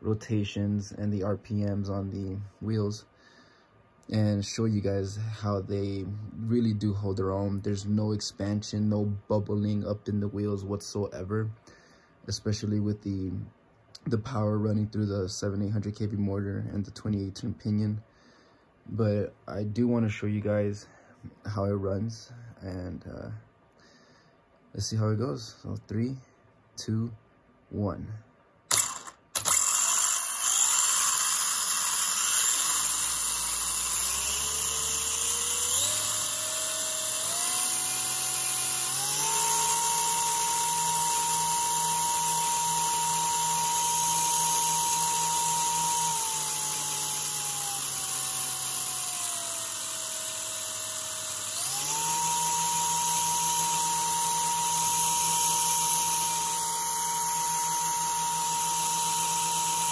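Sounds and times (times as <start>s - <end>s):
electric motor whine: 28.7s - 59.9s.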